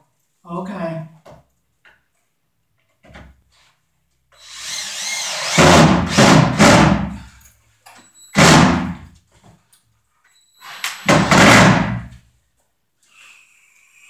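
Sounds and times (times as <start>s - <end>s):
cordless drill running: 4.4s - 6.3s.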